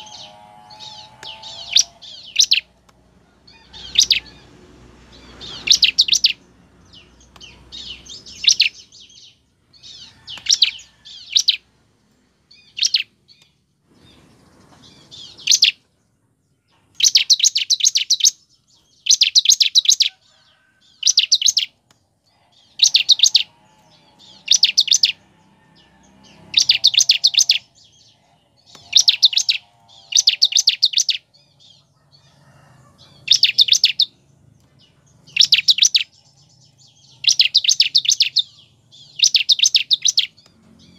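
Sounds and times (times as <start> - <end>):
bird singing trilled bursts: 0.0 - 2.8, 3.6 - 11.7, 14.8 - 15.8, 16.8 - 20.2, 22.4 - 31.7, 33.2 - 34.2, 35.2 - 40.9.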